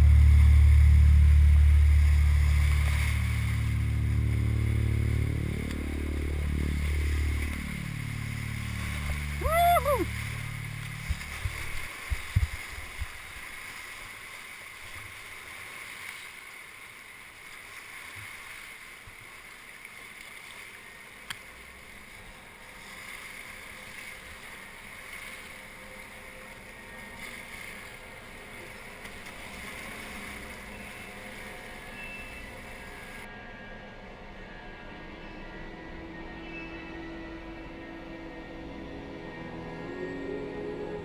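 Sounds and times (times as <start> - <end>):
river rapids rushing: 0.0 - 20.1
kayak splashing through waves: 0.0 - 32.3.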